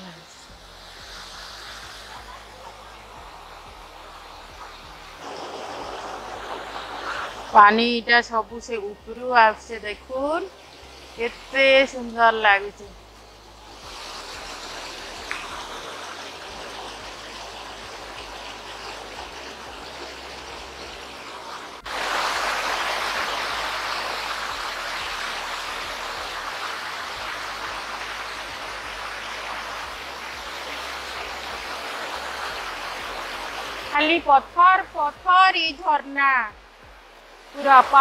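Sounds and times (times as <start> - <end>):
waterfall splashing over rocks: 0.0 - 35.4, 36.5 - 38.0.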